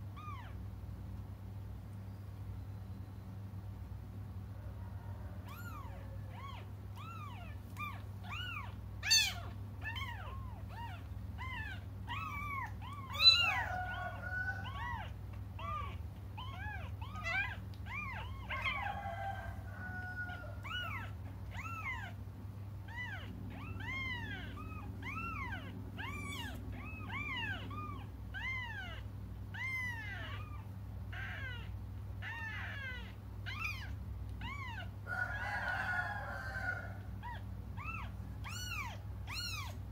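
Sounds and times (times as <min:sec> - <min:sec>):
kittens meowing: 0:00.0 - 0:00.6, 0:05.4 - 0:39.9.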